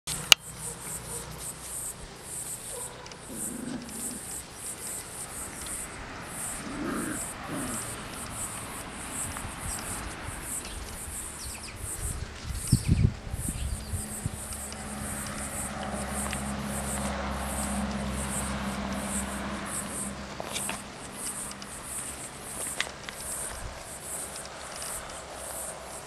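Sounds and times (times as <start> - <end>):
insects chirping: 0.1 - 26.0
puppies growling: 2.6 - 10.0.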